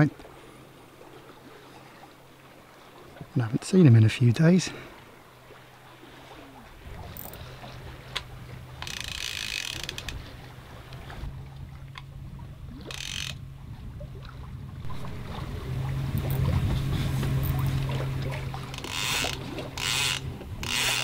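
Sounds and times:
fishing reel ratchet clicking: 0:08.1 - 0:10.3, 0:12.8 - 0:13.4, 0:18.7 - 0:21.0.

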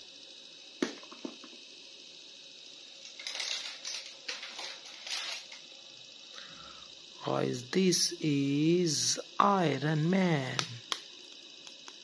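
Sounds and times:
plastic figures rustling and clattering: 0:03.0 - 0:05.6.

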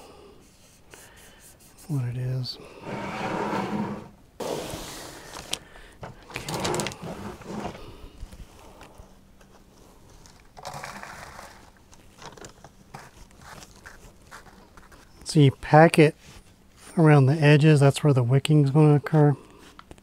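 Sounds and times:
plastic bag rustling: 0:04.4 - 0:07.9.

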